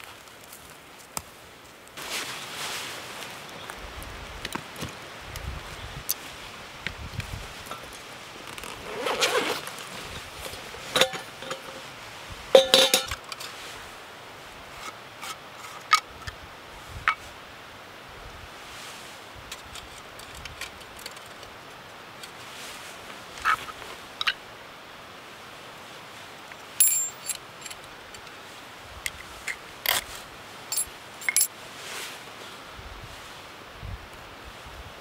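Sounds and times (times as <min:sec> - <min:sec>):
light metallic clinks: 0:12.6 - 0:13.2, 0:26.5 - 0:28.3, 0:30.7 - 0:31.5.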